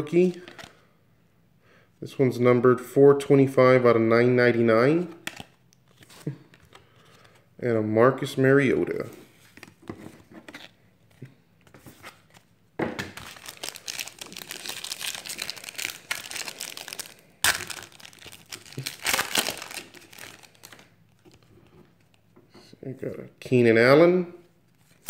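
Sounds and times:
foil wrapper crinkling: 13.1s - 20.9s.

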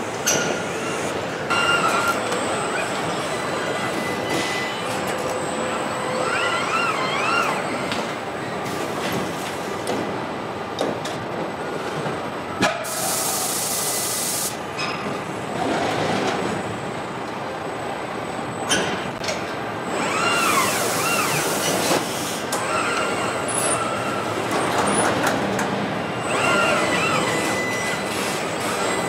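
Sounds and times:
pneumatic air hiss: 12.8s - 14.6s
robot servo motors whining: 20.0s - 21.7s, 26.2s - 29.0s.

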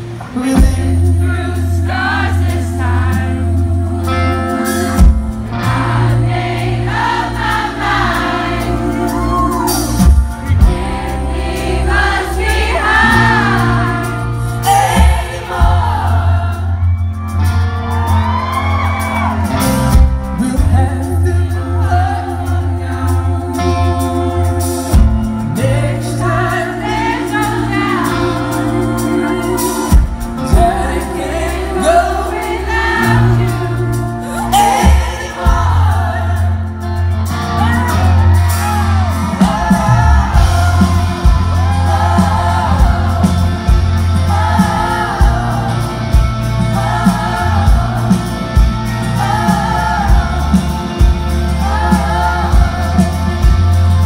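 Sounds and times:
bass guitar: 0.0s - 54.0s
man singing: 20.3s - 29.9s.

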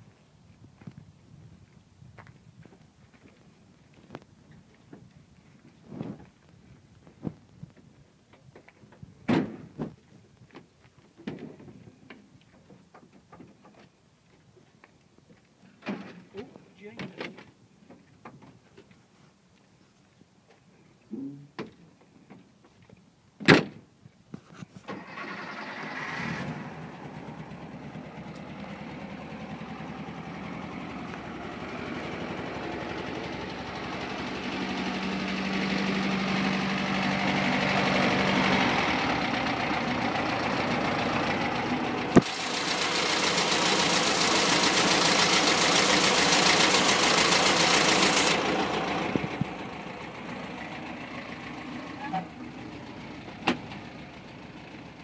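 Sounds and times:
vehicle engine running: 25.5s - 55.0s.

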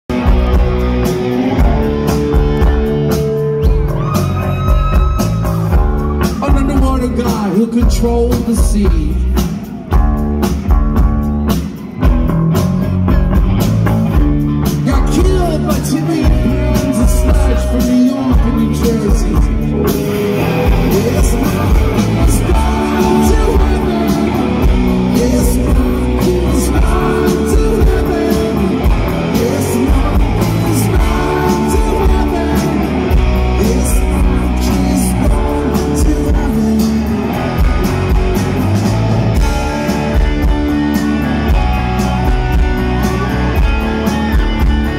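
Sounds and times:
bass guitar: 0.0s - 44.9s
drums: 0.0s - 44.9s
electric guitar: 0.0s - 44.9s
male lead vocal: 6.2s - 9.4s, 14.8s - 37.6s.

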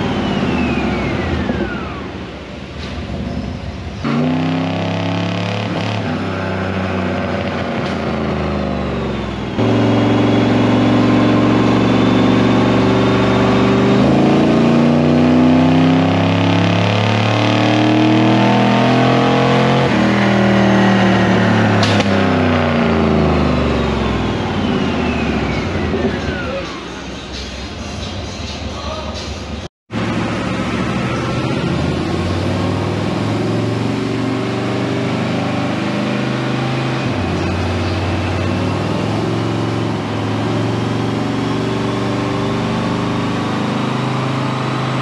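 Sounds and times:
car engine revving: 0.0s - 28.4s, 29.9s - 45.0s.

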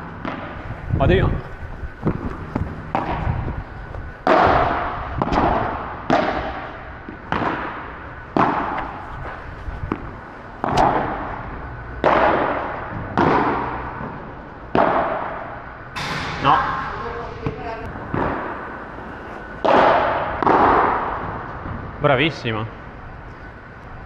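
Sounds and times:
padel ball hits echoing: 10.6s - 11.4s, 19.6s - 21.4s.

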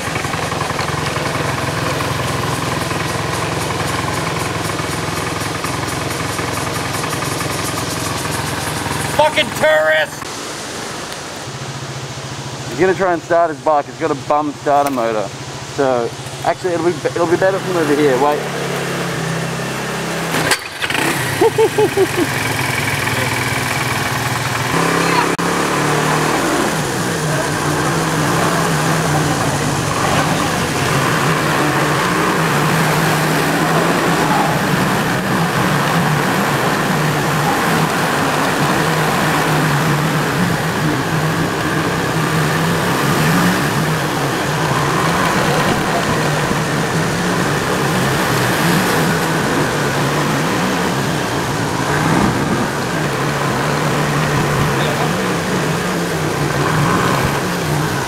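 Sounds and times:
motorcycle engine running: 0.0s - 10.3s, 11.4s - 58.0s
road and air noise: 0.0s - 58.0s.

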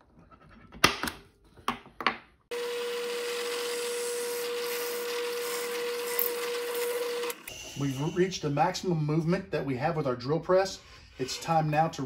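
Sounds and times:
drill press boring: 2.5s - 8.6s.

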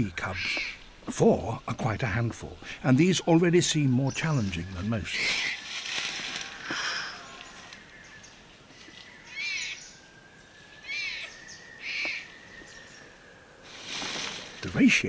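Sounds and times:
tiger cubs mewing: 0.0s - 5.6s.

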